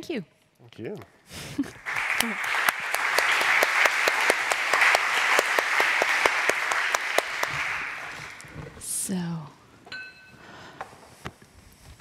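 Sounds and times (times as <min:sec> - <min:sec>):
audience applauding: 0:01.6 - 0:08.6.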